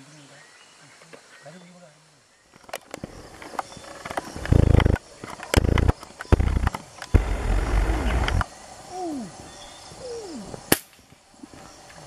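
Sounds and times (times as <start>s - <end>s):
leaves and twigs rustling: 2.4s - 8.8s
twigs cracking: 2.6s - 8.4s.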